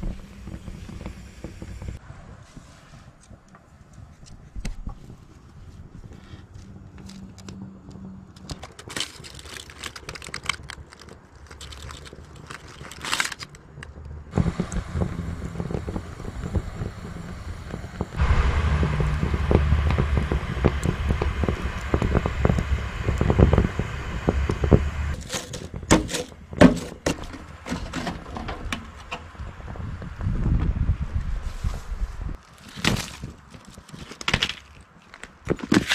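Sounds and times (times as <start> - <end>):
grease crackling on grill: 8.4 - 26.2
gas burner rushing: 14.3 - 25.8.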